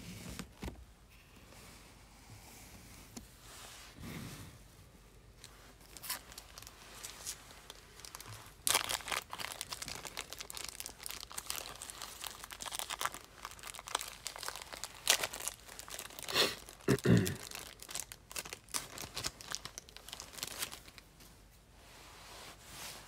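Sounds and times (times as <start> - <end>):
wrapping crinkling and rustling: 5.3 - 21.4.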